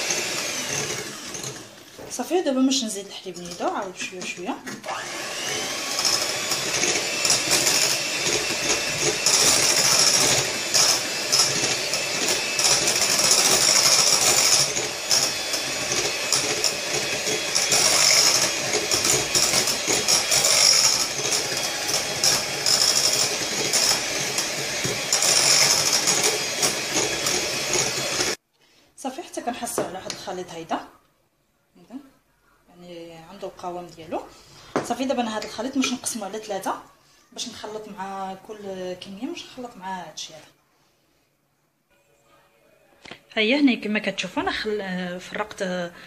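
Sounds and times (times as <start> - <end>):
electric hand mixer whining: 0.0 - 2.1, 3.4 - 28.4.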